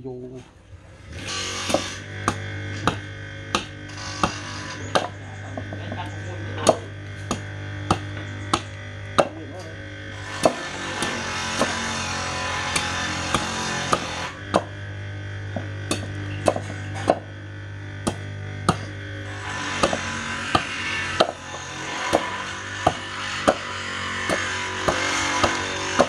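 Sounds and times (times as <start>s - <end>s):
steady low hum: 0.0s - 26.0s
machete chopping into log: 15.9s - 17.2s, 18.1s - 18.9s.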